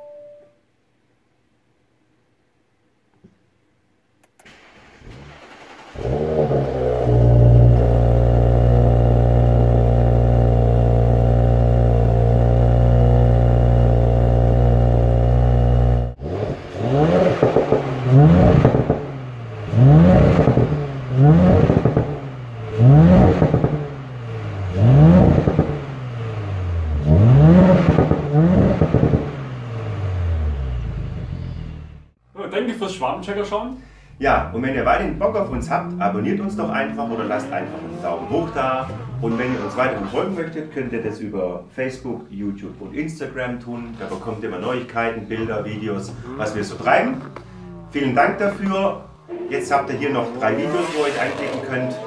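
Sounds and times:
car engine starting and idling: 4.2s - 32.2s, 33.0s - 52.0s
engine revving: 4.6s - 32.2s, 34.3s - 40.5s, 44.6s - 52.0s.

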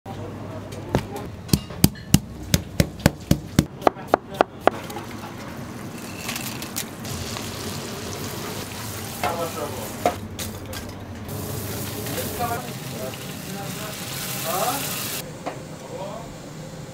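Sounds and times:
meat mallet pounding fish: 1.5s - 4.8s
food sizzling: 7.0s - 10.2s, 11.3s - 15.2s.

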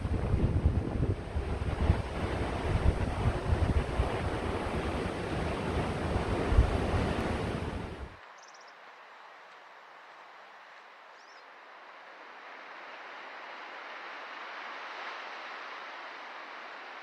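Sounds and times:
hiss of wind or sea: 0.0s - 17.0s
faint high chirp: 8.3s - 8.8s.

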